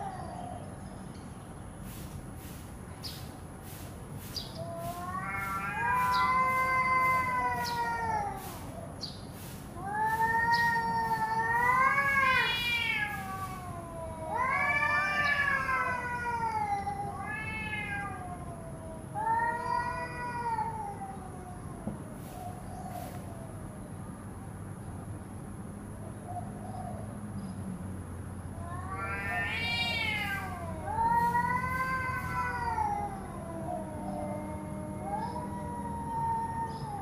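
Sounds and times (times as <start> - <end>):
cats yowling: 0.0 - 0.7, 4.5 - 9.0, 9.7 - 23.8, 28.5 - 37.0.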